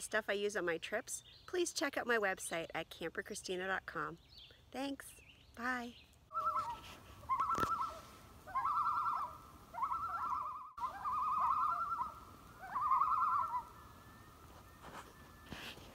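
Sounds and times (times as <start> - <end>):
bird quavering call: 6.3 - 15.4.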